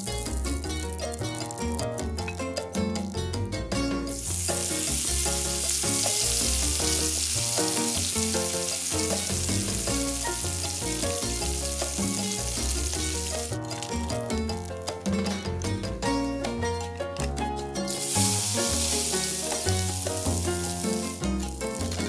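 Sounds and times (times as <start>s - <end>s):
fish sizzling in hot oil: 0.0s - 2.0s, 4.1s - 14.8s, 17.9s - 22.0s
background music: 0.0s - 22.0s.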